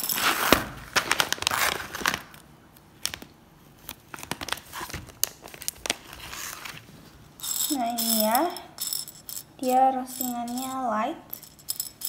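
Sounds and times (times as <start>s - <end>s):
paper bag crinkling: 0.1s - 2.4s, 4.0s - 7.1s.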